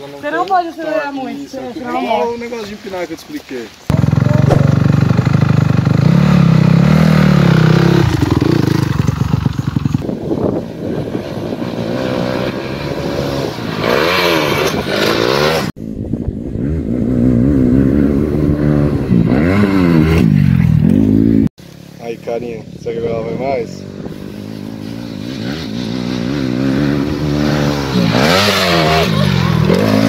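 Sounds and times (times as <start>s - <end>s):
motocross bike engine revving: 3.9s - 15.7s, 16.4s - 21.5s, 23.5s - 30.0s.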